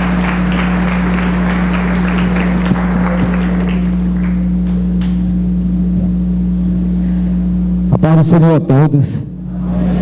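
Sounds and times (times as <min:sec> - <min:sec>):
congregation applauding: 0:00.0 - 0:05.2
low electrical hum: 0:00.0 - 0:10.0.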